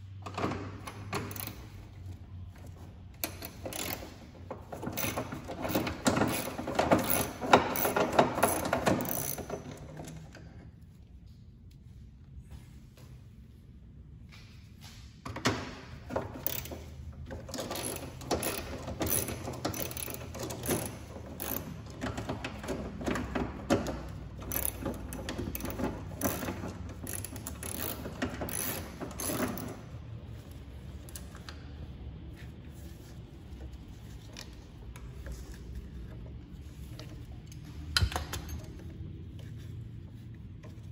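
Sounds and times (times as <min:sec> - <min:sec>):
socket ratchet clicking: 0:00.9 - 0:01.8, 0:03.2 - 0:04.2, 0:05.0 - 0:09.7, 0:16.4 - 0:16.9, 0:17.5 - 0:22.6, 0:23.2 - 0:29.7.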